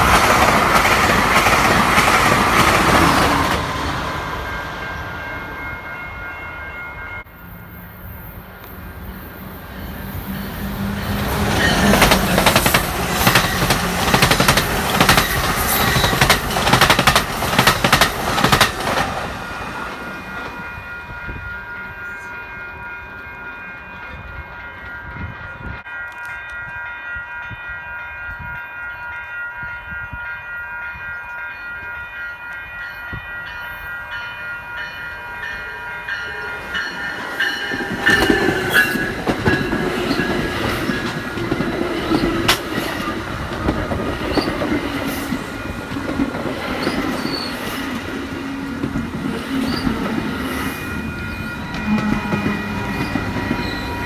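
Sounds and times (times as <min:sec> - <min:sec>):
commuter train approaching: 0:00.0 - 0:54.0
train wheels clicking over rail joints: 0:11.1 - 0:20.6, 0:37.1 - 0:54.0.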